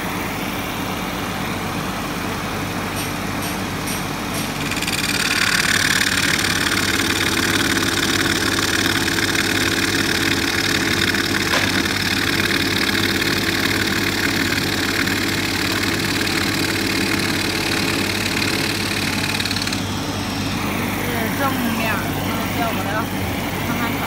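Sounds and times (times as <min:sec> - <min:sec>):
jigsaw sawing through plywood: 0:04.6 - 0:19.9.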